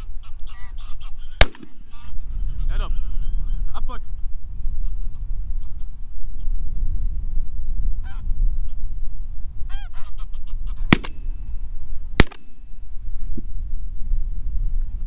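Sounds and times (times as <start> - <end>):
geese honking: 0.0 - 3.2
steady low rumble: 0.0 - 15.0
shotgun shots: 1.4 - 2.1, 10.9 - 11.4, 12.2 - 12.7.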